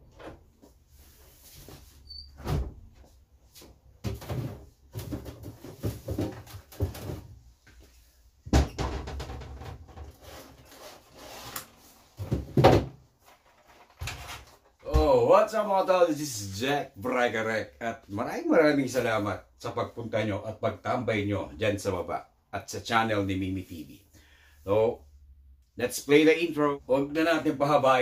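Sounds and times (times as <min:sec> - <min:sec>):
knocks and thumps of objects handled: 0:04.0 - 0:07.9, 0:12.2 - 0:15.0.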